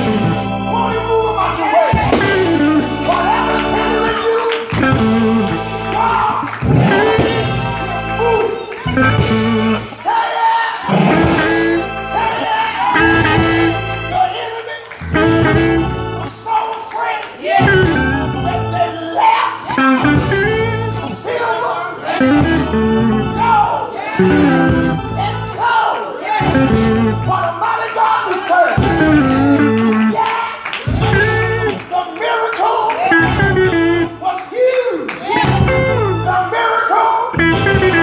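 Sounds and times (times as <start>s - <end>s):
sustained low instrumental chords: 0.0s - 10.0s, 10.8s - 14.4s, 15.0s - 16.5s, 17.5s - 19.0s, 19.7s - 27.7s, 28.8s - 30.2s, 30.9s - 31.9s, 33.1s - 34.2s, 35.4s - 36.5s, 37.4s - 38.0s
person singing: 0.0s - 16.8s, 17.4s - 27.6s.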